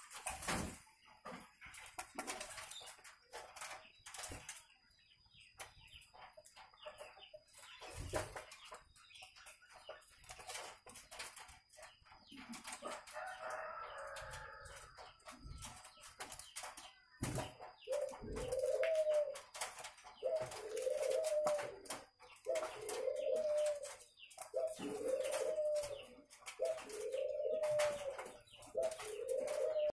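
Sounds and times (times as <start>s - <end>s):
doves cooing: 17.8s - 29.9s.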